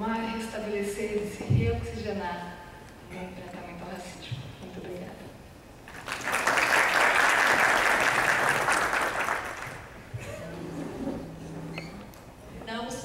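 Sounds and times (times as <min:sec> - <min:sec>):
audience applauding: 0:05.9 - 0:10.1.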